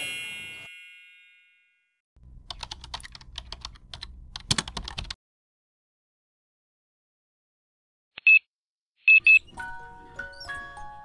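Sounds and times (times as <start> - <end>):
bright chime: 0.0 - 2.0.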